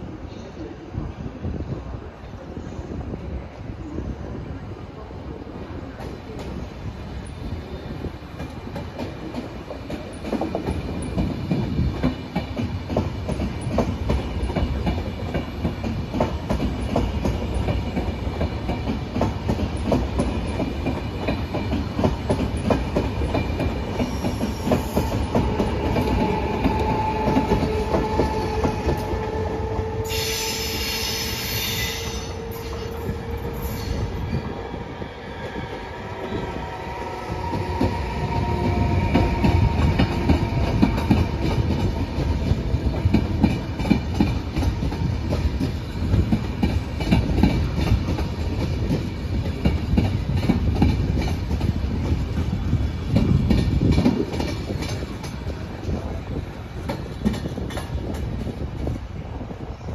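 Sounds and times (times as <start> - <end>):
train wheels clicking over rail joints: 8.2 - 34.5, 37.4 - 59.0
shrill wheel screech: 29.9 - 34.4.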